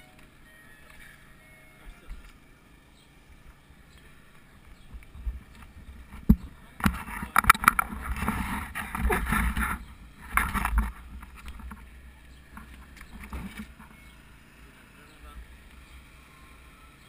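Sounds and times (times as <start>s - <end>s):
bicycle road noise: 0.0s - 17.0s
wind noise: 4.8s - 12.0s
knocks and rattles: 4.9s - 11.9s, 12.5s - 14.0s.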